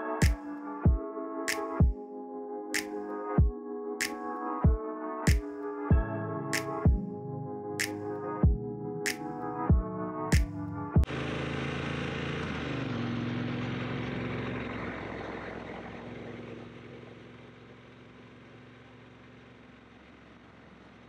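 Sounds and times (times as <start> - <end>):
music with drum hits: 0.2 - 2.0, 2.8 - 3.5, 4.6 - 7.0, 7.8 - 8.6, 9.7 - 11.1
motorcycle engine running: 11.0 - 21.0.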